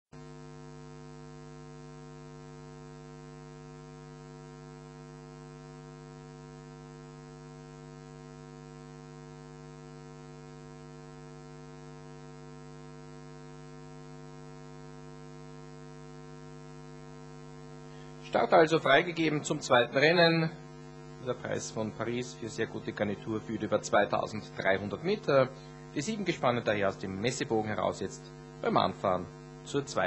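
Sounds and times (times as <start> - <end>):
electrical mains hum: 0.2 - 30.0.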